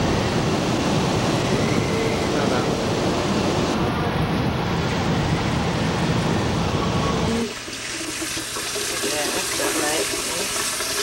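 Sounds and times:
water running from a tap: 0:07.4 - 0:11.0.

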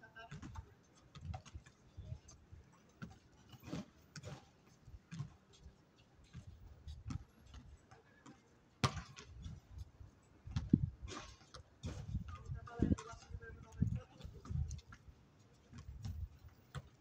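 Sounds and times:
basketball bouncing: 0:08.8 - 0:09.6, 0:15.7 - 0:17.0.

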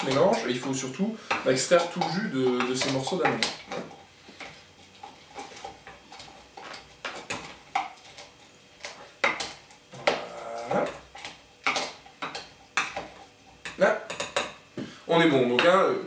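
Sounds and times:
muddler pounding fruit in shaker: 0:00.0 - 0:04.0.

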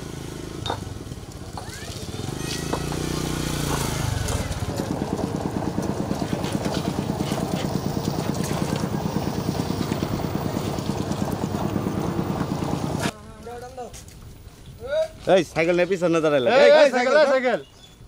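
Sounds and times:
small engine chugging: 0:00.0 - 0:13.1.

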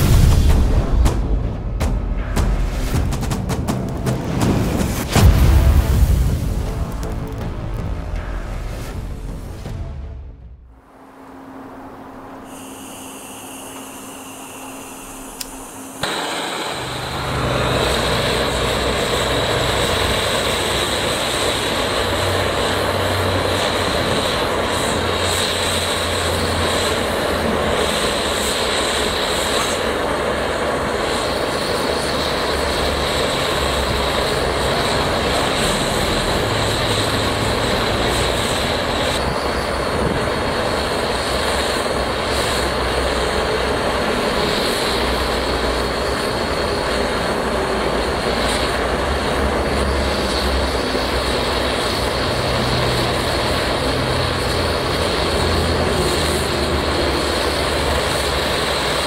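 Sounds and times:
blowtorch flame rushing: 0:12.4 - 0:59.0.

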